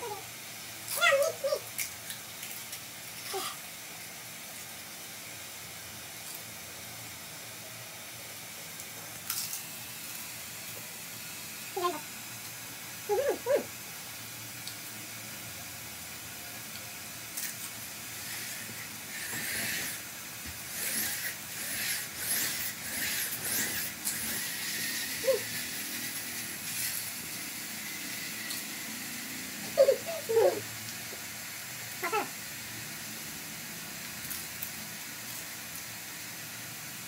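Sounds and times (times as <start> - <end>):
pitched vocal sounds: 11.8 - 12.1, 32.0 - 32.4.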